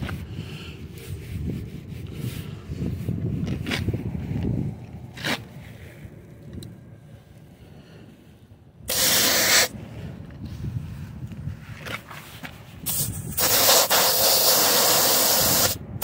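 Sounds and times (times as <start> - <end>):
short hiss of air: 8.9 - 9.7, 12.8 - 15.8.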